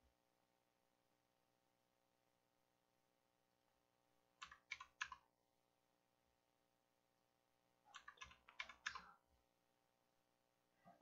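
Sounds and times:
computer keyboard keystrokes: 4.4s - 5.2s, 7.9s - 9.1s.

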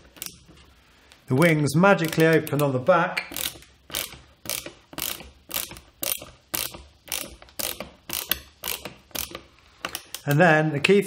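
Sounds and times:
screwdriver ratcheting clicks: 2.0s - 10.4s.

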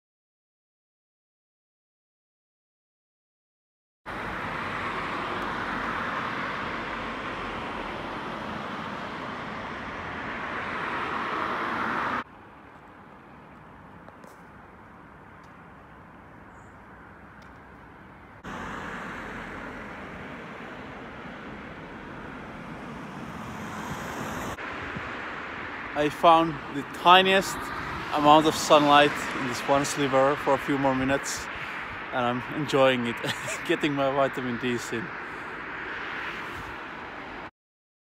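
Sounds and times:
passing cars hissing: 4.1s - 12.2s, 18.4s - 32.3s.

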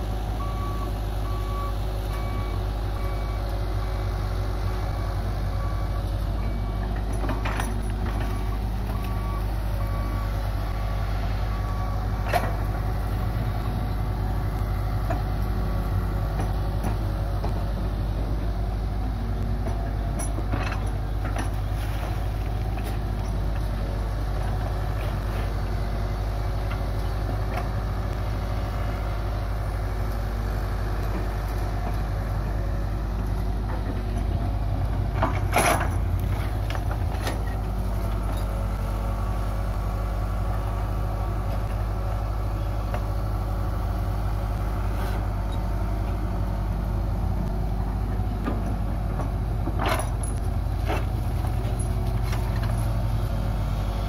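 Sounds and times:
excavator diesel engine running: 0.0s - 54.0s
excavator bucket clanks: 6.8s - 8.4s, 19.6s - 21.7s, 35.0s - 38.6s, 48.4s - 53.0s.

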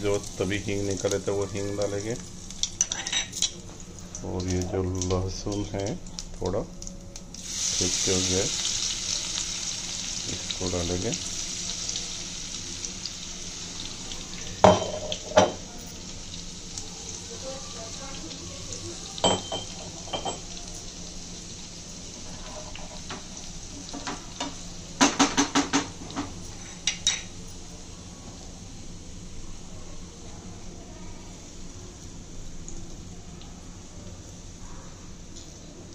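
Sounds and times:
oil sizzling in a frying pan: 0.0s - 35.9s
metal utensils clinking on pan: 2.5s - 3.6s, 19.2s - 20.9s.

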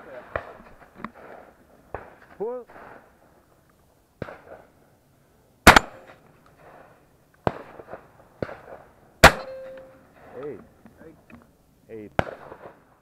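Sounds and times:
fainter gunshot bangs: 5.6s - 6.2s, 12.2s - 12.8s
loud shotgun shots: 5.6s - 6.2s, 7.4s - 9.8s, 12.1s - 12.8s.

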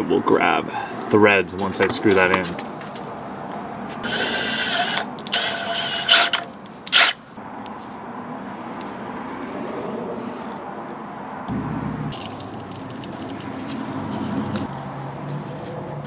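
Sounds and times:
cordless drill whirring: 4.0s - 7.2s.

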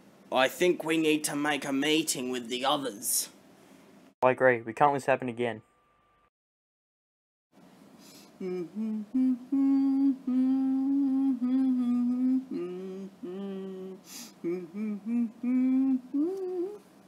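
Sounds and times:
person humming: 8.4s - 16.9s.

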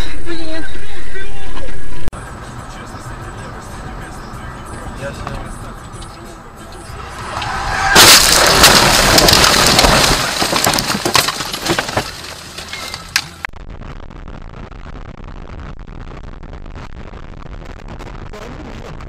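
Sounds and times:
road noise of moving car: 2.0s - 13.5s
windshield cracking: 5.9s - 13.5s
car crash impact: 6.8s - 13.5s
crashing cracking and scraping: 7.2s - 13.5s.

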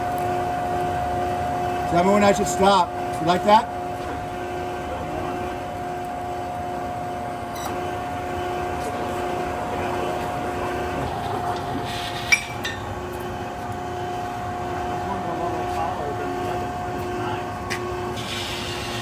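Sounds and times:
hydraulic pump whining: 0.0s - 19.0s.

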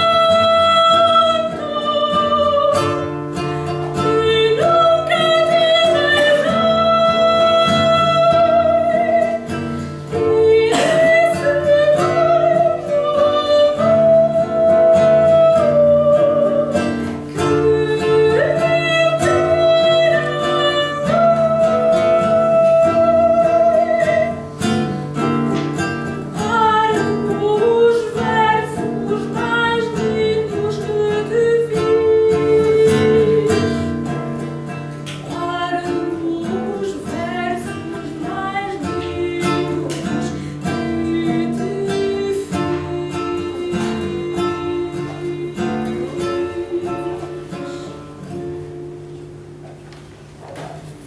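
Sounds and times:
woman singing classical song: 0.0s - 49.6s
classical guitar broken chords: 0.0s - 51.0s.

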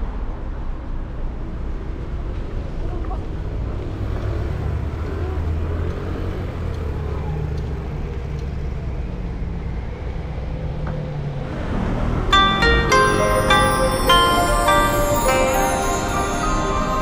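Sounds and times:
car engines rumbling: 0.1s - 13.6s.

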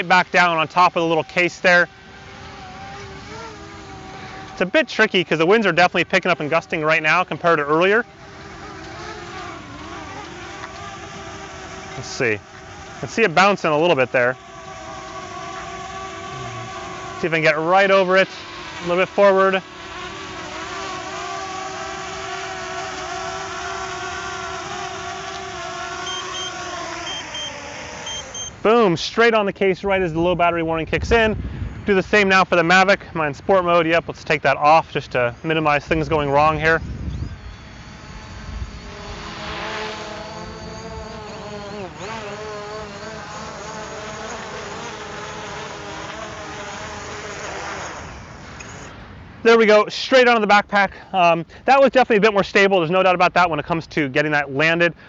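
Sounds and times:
drone propellers whining: 0.0s - 32.4s, 34.6s - 49.8s
short high warning beeps: 26.1s - 27.5s, 28.1s - 28.6s
wind rumble on microphone: 29.9s - 32.2s, 35.9s - 39.3s.

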